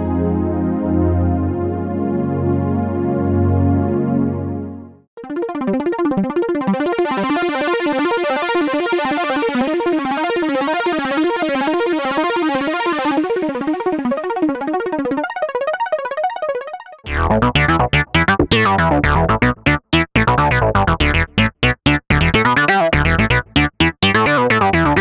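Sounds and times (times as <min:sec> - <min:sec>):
synth arpeggio: 0:13.4 - 0:25.0.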